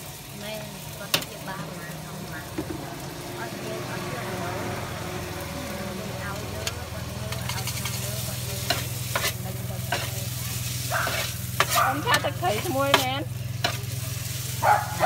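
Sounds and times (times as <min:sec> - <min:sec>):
noodles sizzling in a wok: 0:00.0 - 0:15.0
metal spatula scraping a pan: 0:07.3 - 0:14.6.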